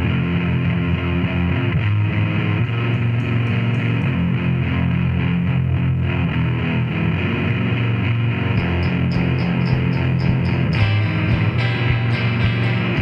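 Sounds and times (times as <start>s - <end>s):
noise rock with distorted guitars: 0.0s - 13.0s.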